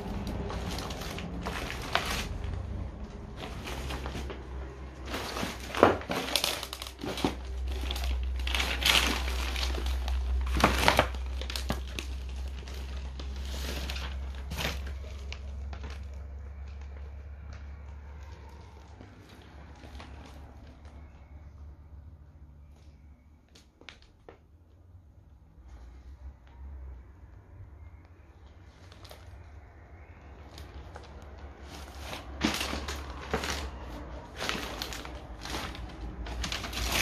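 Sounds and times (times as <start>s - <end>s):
paper rustling and crinkling: 0.0s - 21.6s, 28.5s - 37.0s.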